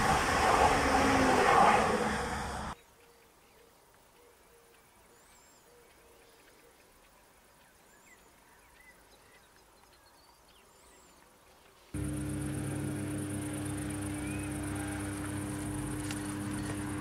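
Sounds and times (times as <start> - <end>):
high pulsing buzz: 0.0 - 2.8, 12.0 - 17.0
steady drone: 0.0 - 2.8, 12.0 - 17.0
faint bird chirps: 13.8 - 16.9.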